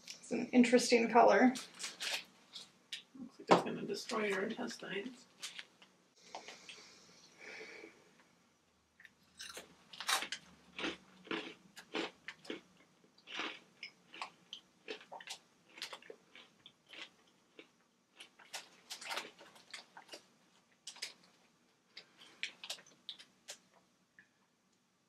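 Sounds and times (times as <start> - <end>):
crunchy chewing of snacks: 9.0 - 23.8.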